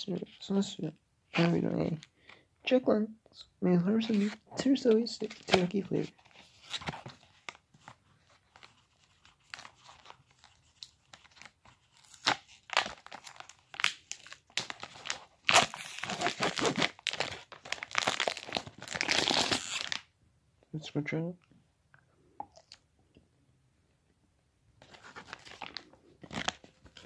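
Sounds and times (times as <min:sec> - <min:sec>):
plastic wrapper crinkling and tearing: 0:05.1 - 0:20.1, 0:24.8 - 0:27.0.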